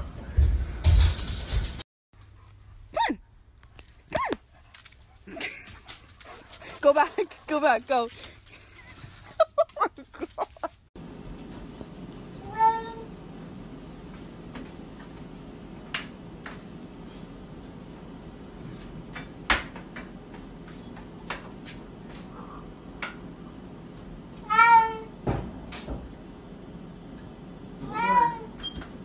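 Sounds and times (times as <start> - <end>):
cat meowing: 12.4 - 13.1, 24.4 - 25.1, 27.8 - 28.6.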